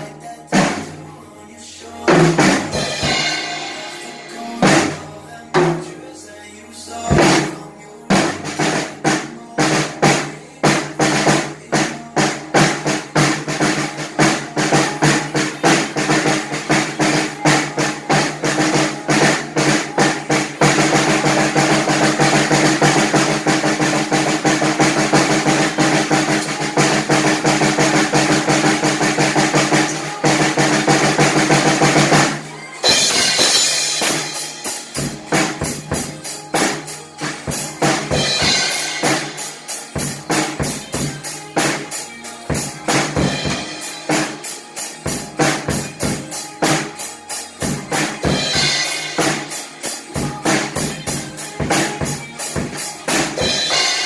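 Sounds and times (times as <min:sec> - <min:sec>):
drum kit beat: 0:00.0 - 0:01.2, 0:01.9 - 0:54.0
backing song: 0:00.0 - 0:54.0
bright cymbal crashes: 0:02.8 - 0:05.1.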